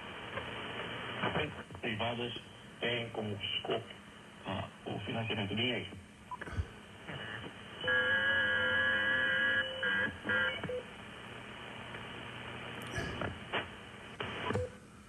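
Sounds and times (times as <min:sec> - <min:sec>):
radio band hiss: 0:00.0 - 0:07.8
steady radio tones: 0:04.5 - 0:10.7, 0:11.5 - 0:14.6.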